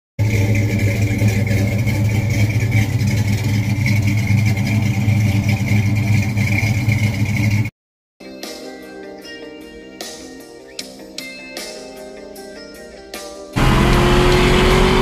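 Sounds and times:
car engine idling: 0.2s - 7.7s, 13.6s - 15.0s.

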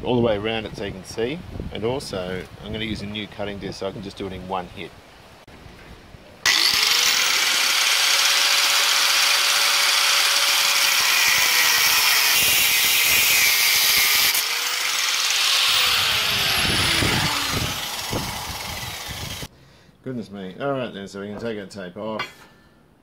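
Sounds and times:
angle grinder cutting metal tube: 6.5s - 19.5s.

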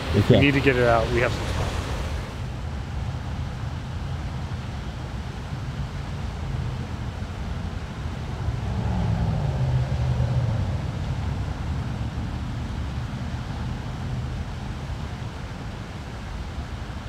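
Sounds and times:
road traffic rumble: 0.0s - 17.0s
vehicle passing: 8.2s - 14.5s.

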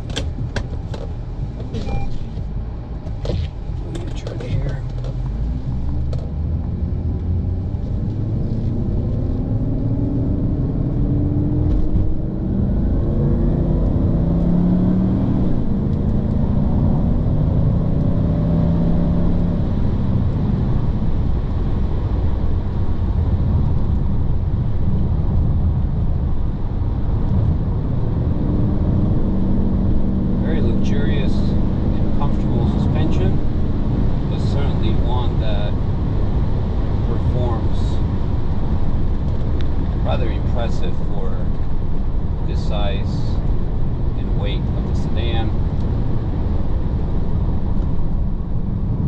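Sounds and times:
car engine accelerating: 0.0s - 49.0s
tyre and road rumble: 0.0s - 49.0s.

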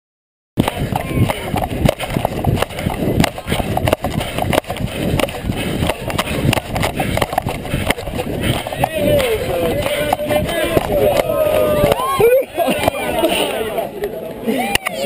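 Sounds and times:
camera mount rubbing and jolting: 0.6s - 12.0s
running footfalls thudding: 0.6s - 13.0s
wind noise: 0.6s - 13.4s.

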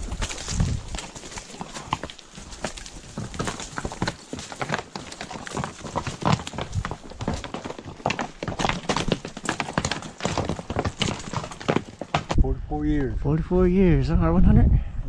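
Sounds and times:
horse hooves on rock: 0.0s - 12.4s.

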